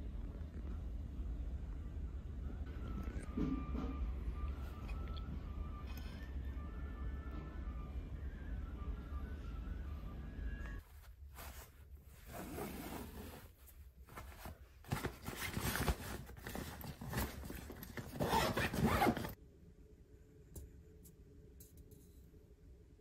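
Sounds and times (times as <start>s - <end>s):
fabric rustling: 10.8s - 19.4s
backpack zipper being pulled: 12.2s - 13.5s, 18.1s - 19.4s.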